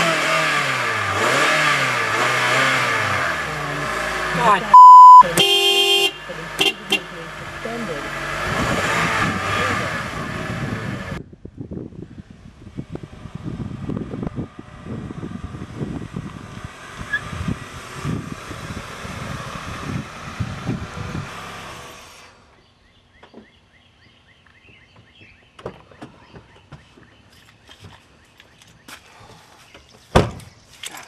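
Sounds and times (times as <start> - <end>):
vehicle engine and tyres: 0.0 - 31.0
wind buffeting on microphone: 8.4 - 21.5.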